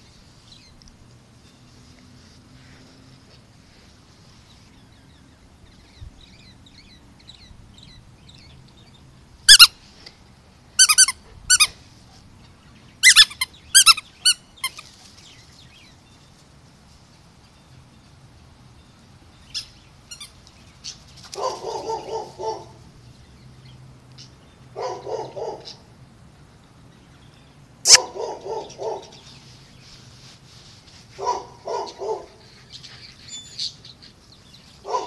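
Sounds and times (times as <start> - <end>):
squeaky dog toy squeaking: 9.5 - 9.7, 10.8 - 11.7, 13.0 - 14.8.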